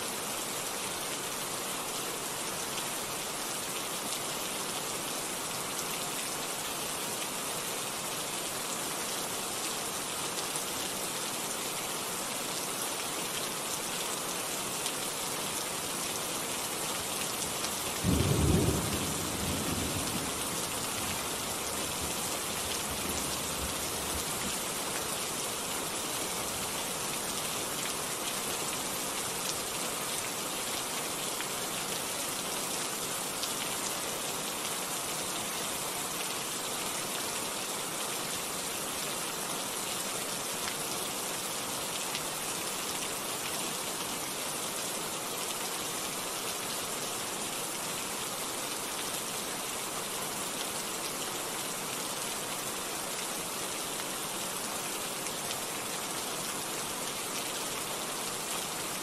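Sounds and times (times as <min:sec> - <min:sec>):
steady rain falling: 0:00.0 - 0:59.0
low rumble of thunder: 0:18.1 - 0:20.5.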